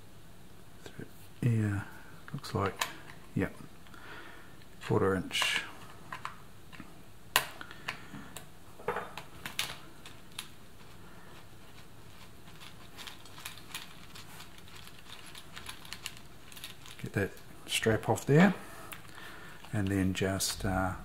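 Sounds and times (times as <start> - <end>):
fingers handling small parts: 11.7 - 17.5.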